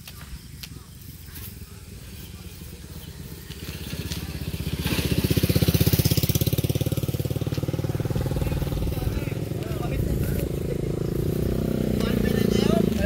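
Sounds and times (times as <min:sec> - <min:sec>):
small engine running: 0:01.4 - 0:13.0.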